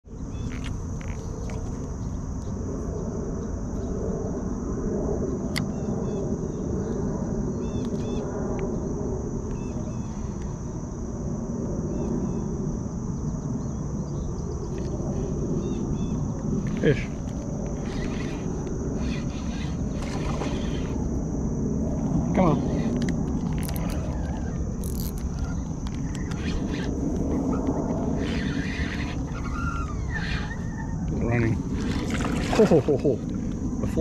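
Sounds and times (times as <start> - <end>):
crickets chirping: 0.0 - 34.0
birds chirping: 13.2 - 21.1, 22.3 - 33.4.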